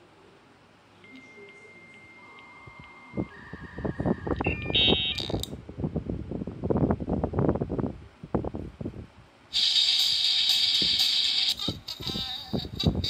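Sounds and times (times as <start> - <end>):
piezo buzzer beeps: 1.2 - 5.4.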